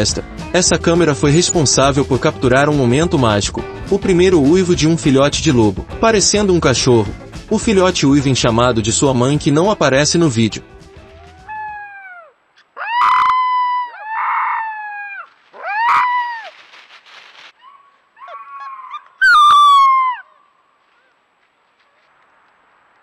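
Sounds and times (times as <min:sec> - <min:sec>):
wolf pup howling: 0:11.1 - 0:16.6, 0:17.6 - 0:20.4.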